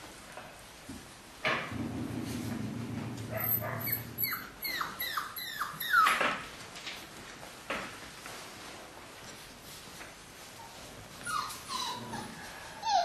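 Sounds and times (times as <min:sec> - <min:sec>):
low steady hum: 0:01.7 - 0:05.6
puppies whimpering: 0:03.4 - 0:06.2, 0:11.2 - 0:13.0.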